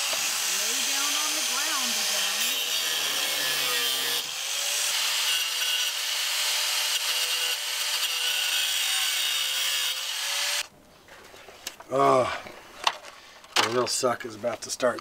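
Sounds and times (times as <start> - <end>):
rotary tool grinding metal: 0.0 - 10.7.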